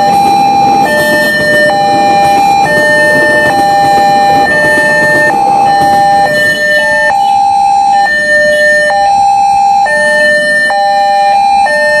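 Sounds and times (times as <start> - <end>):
railroad crossing alarm tones: 0.0 - 12.0.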